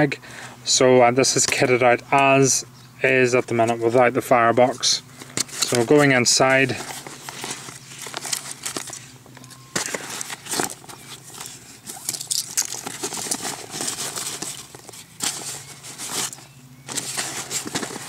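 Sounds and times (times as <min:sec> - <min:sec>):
fabric bag rustling: 0:09.8 - 0:18.0.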